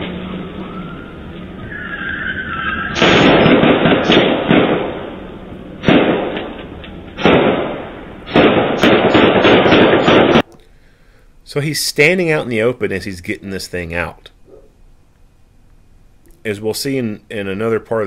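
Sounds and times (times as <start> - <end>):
gunshots ringing off street: 2.8 - 10.5.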